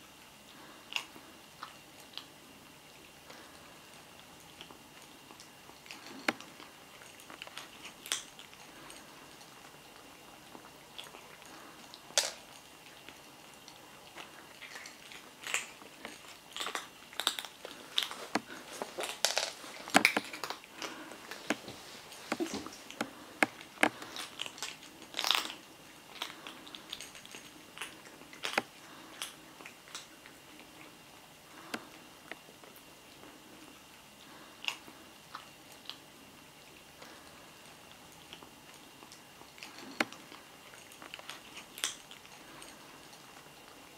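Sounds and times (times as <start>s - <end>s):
kittens crunching dry kibble: 0.0s - 43.9s.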